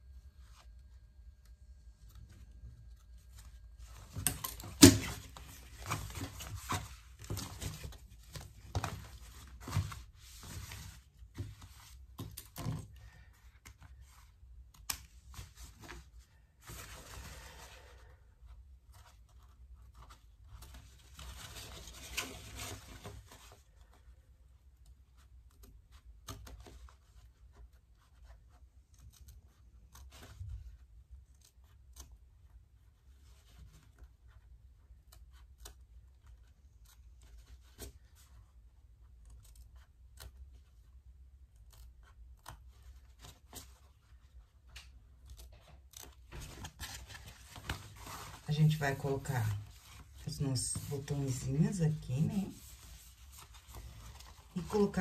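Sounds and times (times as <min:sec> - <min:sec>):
fabric rustling: 0:00.1 - 0:14.5, 0:15.1 - 0:24.2, 0:41.7 - 0:55.0.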